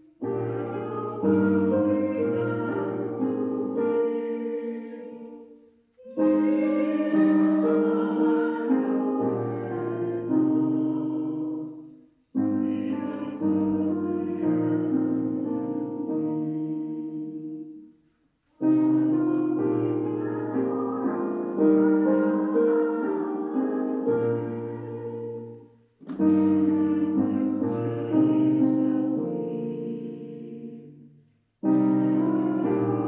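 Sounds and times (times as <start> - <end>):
choir singing a carol: 0.0 - 17.8, 18.6 - 33.0.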